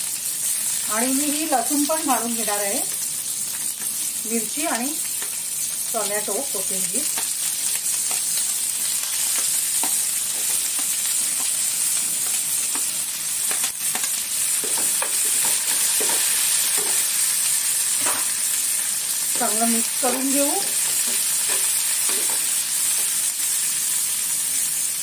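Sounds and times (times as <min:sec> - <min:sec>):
food sizzling in oil: 0:00.0 - 0:25.0
stirring in a pan: 0:07.1 - 0:18.4, 0:19.3 - 0:23.3.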